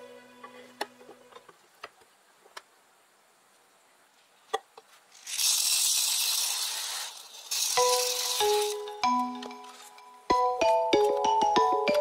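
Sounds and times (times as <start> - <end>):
soil pouring through funnel: 5.1 - 8.8.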